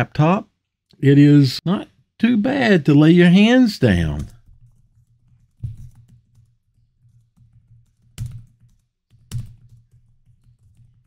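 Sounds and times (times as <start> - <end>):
laptop keyboard typing: 3.9 - 11.0.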